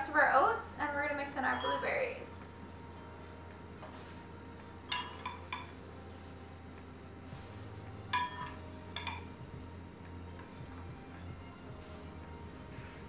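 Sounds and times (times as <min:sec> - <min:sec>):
metal cup clinking on glass jar: 0:01.5 - 0:02.0, 0:04.9 - 0:05.8, 0:08.1 - 0:09.3.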